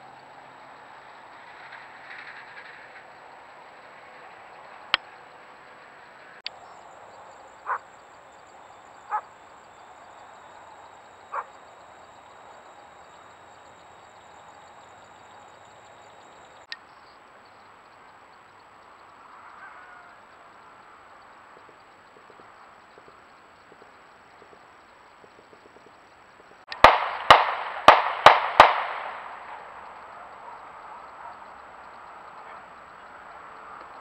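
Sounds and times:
steady outdoor hiss: 0.0s - 34.0s
short animal calls: 7.5s - 8.0s, 8.9s - 9.4s, 11.2s - 11.6s.

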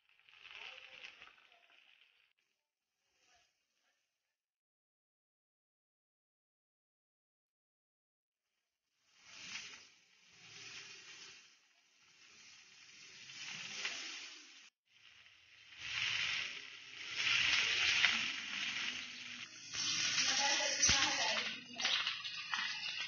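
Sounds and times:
skewers sizzling on a griddle: 0.0s - 2.4s, 9.0s - 23.0s.

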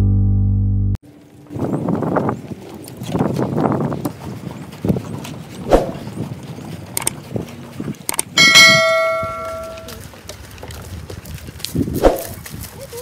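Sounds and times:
footsteps on wooden boardwalk: 1.1s - 13.0s
sharp clicks: 7.0s - 7.2s, 8.1s - 8.4s
bright bell chime: 8.4s - 9.9s.

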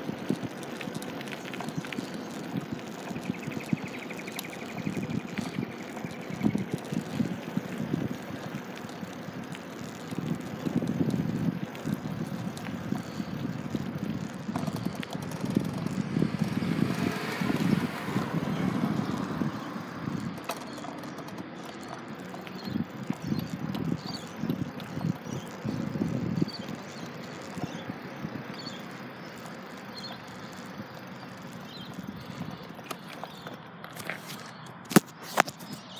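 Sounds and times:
small wheels rolling on asphalt: 0.0s - 35.9s
wind buffeting microphone: 0.0s - 35.9s.

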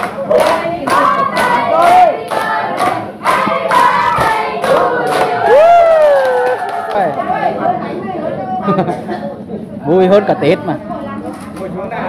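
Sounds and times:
group singing a birthday song: 0.0s - 5.8s, 6.4s - 8.2s
hand clapping to the beat: 0.0s - 7.2s.

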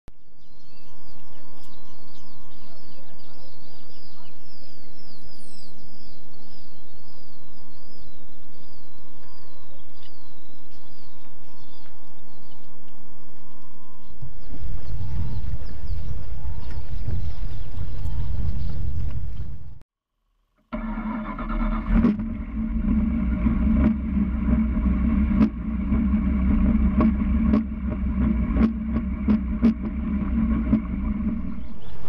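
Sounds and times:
bird chirping: 0.1s - 19.8s, 24.8s - 32.0s
low rumble and hum: 0.1s - 19.8s, 20.7s - 32.0s.

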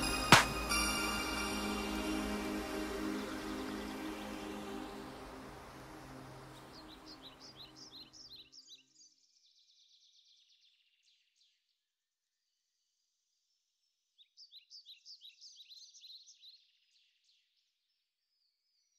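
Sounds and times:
music: 0.0s - 7.9s
songbird chirping: 0.0s - 11.6s.

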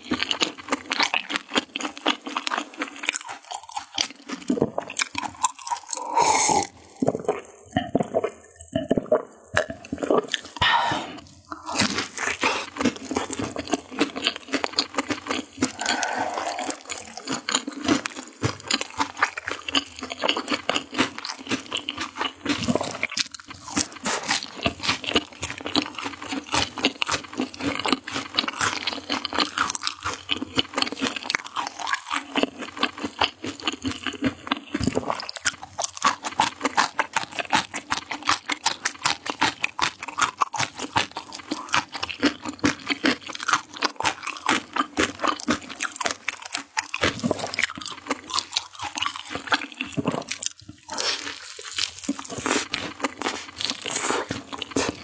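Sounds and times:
crunching crisp fried chicken: 0.0s - 10.6s, 11.2s - 55.0s
person gulping drink: 3.6s - 20.6s, 22.5s - 24.7s, 47.0s - 55.0s.

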